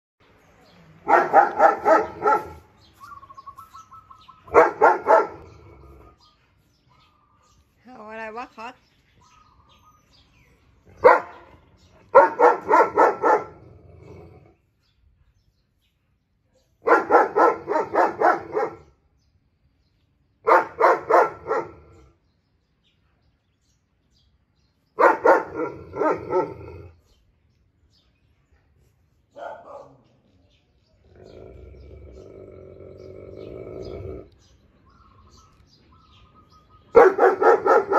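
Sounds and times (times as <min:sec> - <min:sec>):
dog barking: 0:01.0 - 0:02.7, 0:04.4 - 0:05.5, 0:11.0 - 0:13.6, 0:16.6 - 0:18.9, 0:20.4 - 0:21.8, 0:25.0 - 0:26.6, 0:29.3 - 0:30.1, 0:36.9 - 0:37.9.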